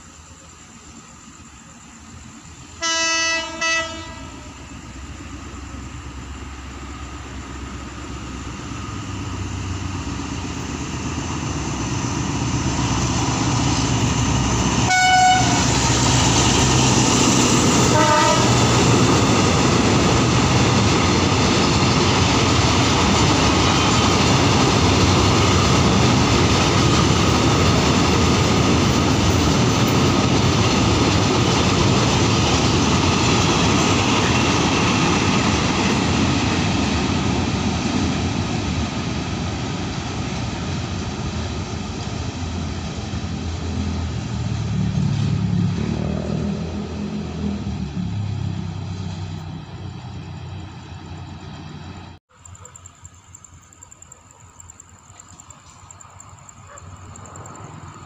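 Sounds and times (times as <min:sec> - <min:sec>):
diesel locomotive approaching: 0:00.0 - 0:58.0
train horn blasts: 0:02.8 - 0:04.6, 0:14.8 - 0:15.9, 0:17.8 - 0:18.8
train wagons rumbling and clacking: 0:03.4 - 0:58.0.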